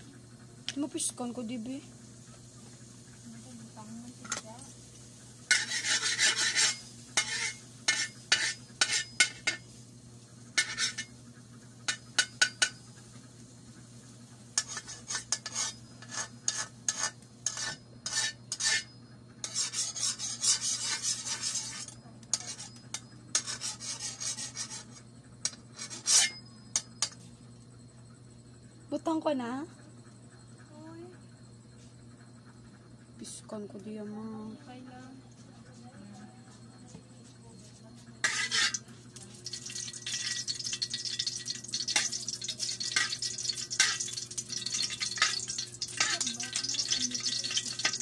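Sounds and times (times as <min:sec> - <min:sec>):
utensil scraping and clinking: 0:04.1 - 0:04.7, 0:05.4 - 0:09.7, 0:10.5 - 0:11.2, 0:11.8 - 0:12.8, 0:14.6 - 0:27.2, 0:38.2 - 0:48.0.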